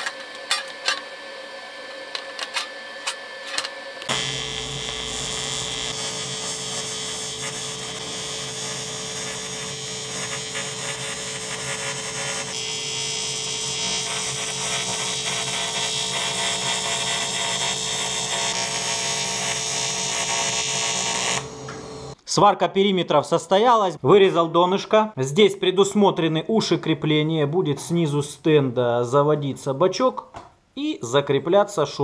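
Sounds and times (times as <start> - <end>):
welding arc humming hiss: 0.0 - 22.2.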